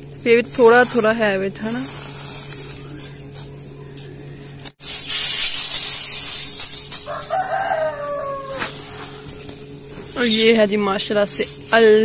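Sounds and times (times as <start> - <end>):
loud steady hiss: 4.7 - 7.3
rooster crowing: 7.0 - 9.2.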